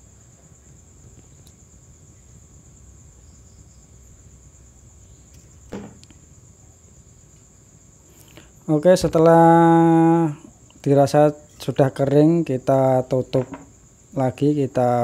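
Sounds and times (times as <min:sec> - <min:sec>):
crickets trilling: 0:00.0 - 0:15.0
low room hum: 0:00.0 - 0:15.0
handling noise: 0:05.7 - 0:06.2.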